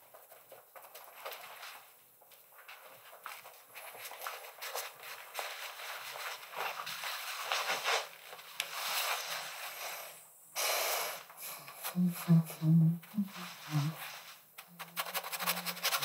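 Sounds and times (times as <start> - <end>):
paintbrush scraping on canvas: 13.1 - 16.0.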